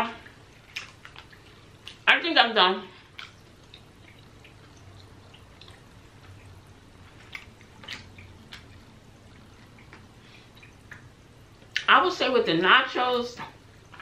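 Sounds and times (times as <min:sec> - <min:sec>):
low steady hum: 0:00.0 - 0:14.0
faint chewing: 0:00.2 - 0:02.0, 0:03.0 - 0:11.9.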